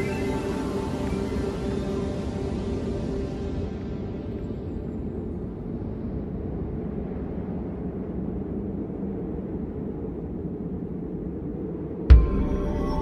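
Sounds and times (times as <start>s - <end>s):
deep ambient drone: 0.0s - 13.0s.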